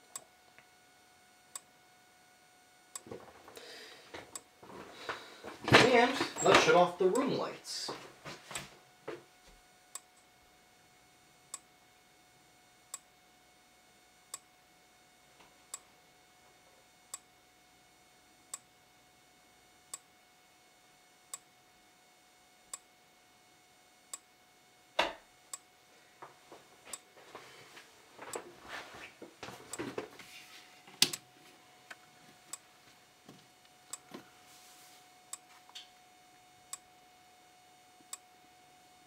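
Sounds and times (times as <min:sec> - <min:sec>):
faint steady tone: 0:30.7 - 0:39.0.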